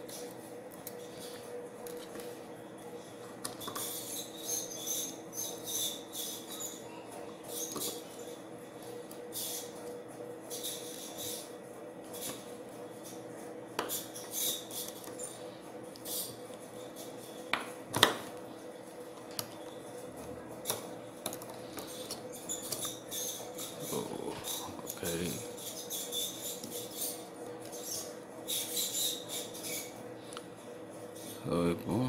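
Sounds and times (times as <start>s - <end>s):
steady low hum: 0.0s - 32.0s
screwdriver scratching metal: 21.8s - 30.0s.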